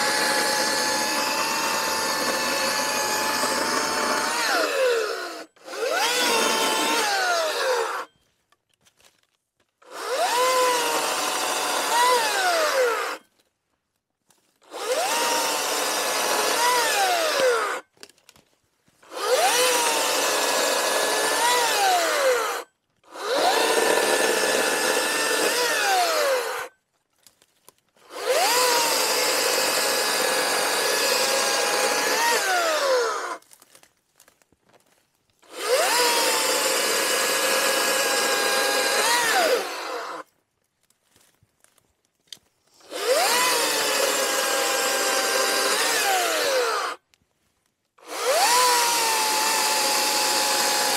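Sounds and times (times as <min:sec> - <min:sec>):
electric chainsaw cutting wood: 0:00.0 - 0:08.1, 0:09.8 - 0:13.2, 0:14.6 - 0:17.9, 0:19.0 - 0:26.7, 0:28.0 - 0:33.4, 0:35.4 - 0:40.3, 0:42.8 - 0:47.0, 0:48.0 - 0:50.9.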